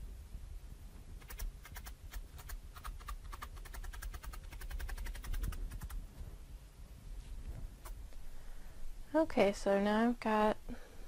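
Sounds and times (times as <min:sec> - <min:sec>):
felting needle clicking: 0:01.2 - 0:06.0.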